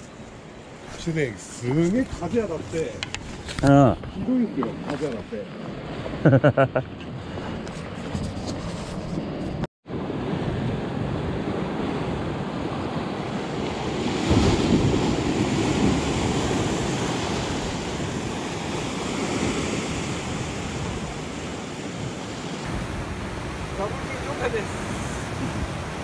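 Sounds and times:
wind buffeting microphone: 1.7s - 26.0s
sea surf breaking on rocks: 9.9s - 26.0s.

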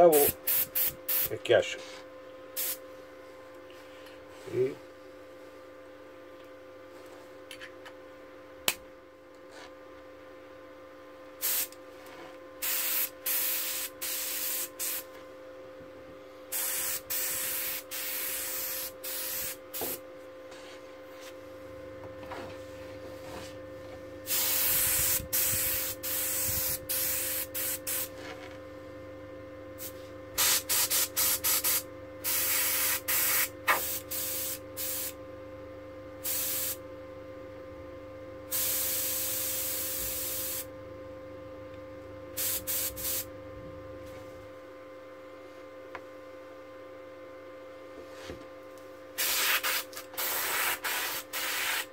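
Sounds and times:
steady hum: 0.0s - 51.9s
airbrush hissing bursts: 0.5s - 1.3s, 2.6s - 2.8s, 11.4s - 11.7s, 12.6s - 15.0s, 16.5s - 20.0s, 24.3s - 28.1s, 30.4s - 35.1s, 36.2s - 36.8s, 38.5s - 40.6s, 42.4s - 43.3s, 49.2s - 51.9s.

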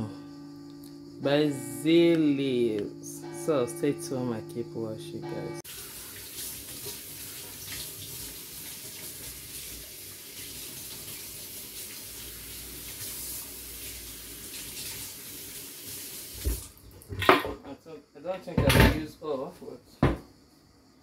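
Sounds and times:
tap water splashing in sink: 5.7s - 15.2s, 15.9s - 17.5s
knock: 20.0s - 20.3s.

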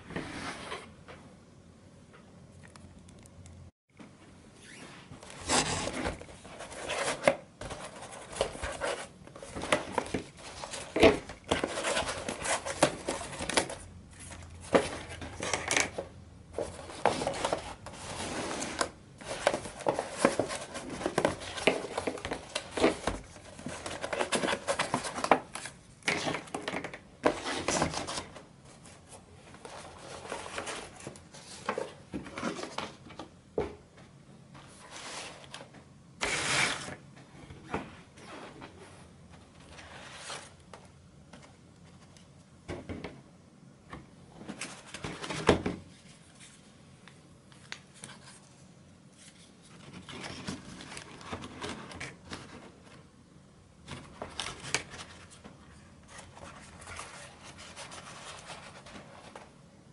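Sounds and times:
paper rustling and scraping: 4.6s - 33.1s, 34.6s - 37.0s, 37.7s - 40.6s, 47.9s - 53.0s, 53.9s - 59.6s.

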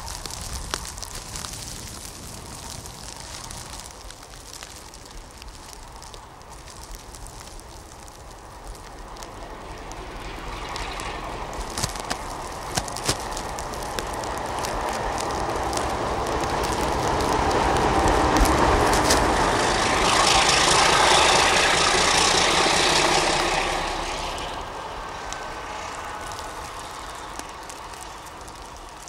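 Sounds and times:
snowplough hissing through snow: 4.5s - 29.0s
diesel locomotive engine rumble: 7.1s - 29.0s.

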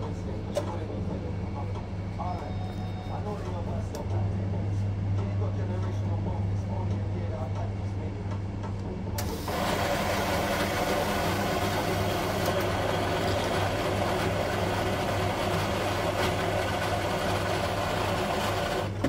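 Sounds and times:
coffee machine whirring: 5.2s - 19.0s.

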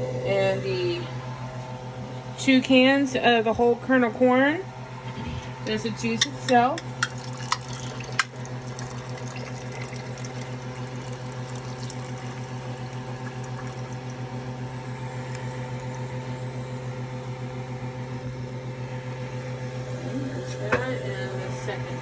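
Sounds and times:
liquid pouring into a pot: 7.0s - 16.3s.

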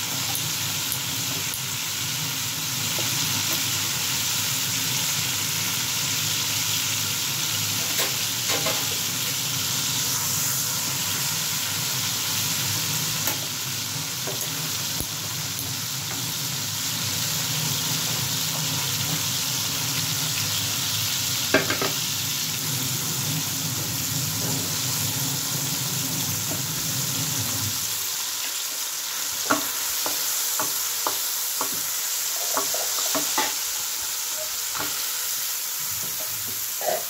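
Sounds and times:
vegetables sizzling in hot oil: 0.0s - 37.0s
wooden spatula scraping a pan: 31.7s - 33.6s.

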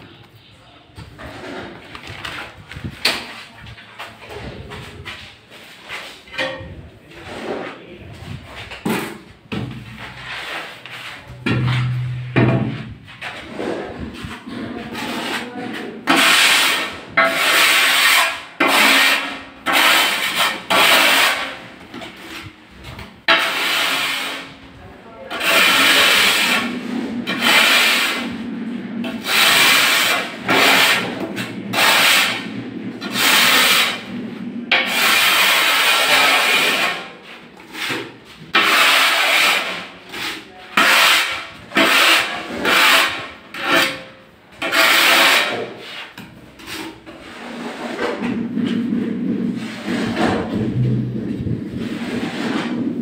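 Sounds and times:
trowel scraping tile adhesive: 13.2s - 22.5s, 23.3s - 24.6s, 25.2s - 34.1s, 34.7s - 48.9s.

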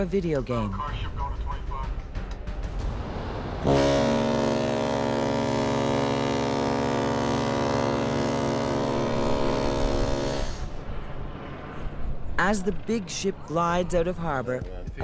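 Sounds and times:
deep ship horn blast: 3.6s - 12.2s.

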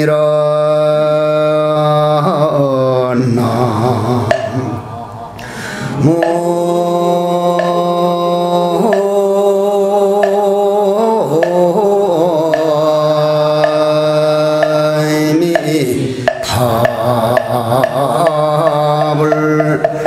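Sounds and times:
person chanting held notes: 0.0s - 20.0s
regular knocks: 4.2s - 6.6s, 7.5s - 8.0s, 8.8s - 9.3s, 10.2s - 10.6s, 11.3s - 11.8s, 12.4s - 20.0s.

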